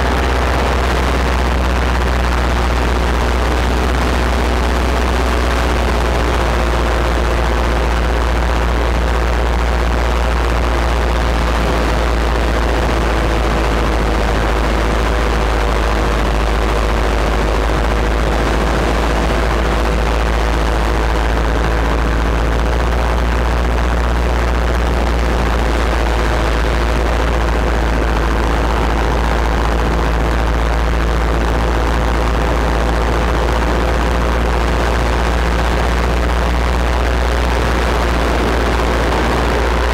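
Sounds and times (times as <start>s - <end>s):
paramotor engine droning: 0.0s - 39.9s.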